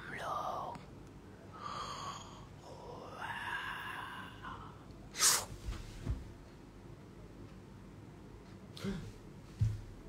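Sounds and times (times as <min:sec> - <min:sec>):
man whispering breathily: 0:00.0 - 0:00.9.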